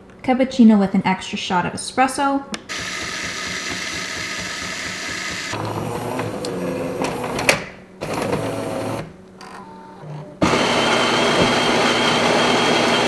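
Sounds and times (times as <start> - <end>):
espresso machine whirring and hissing: 2.7 - 9.1, 10.4 - 13.0.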